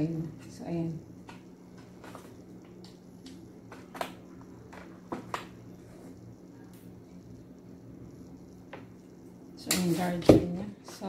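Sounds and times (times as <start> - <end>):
steady low hum: 0.0 - 11.0
charging cable clicks and rustles: 1.2 - 5.6.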